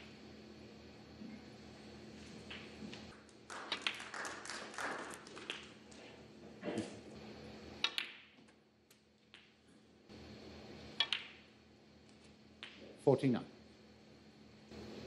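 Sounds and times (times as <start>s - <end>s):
snooker balls clicking: 2.5s - 6.2s, 7.8s - 9.7s, 11.0s - 11.5s, 12.1s - 12.9s.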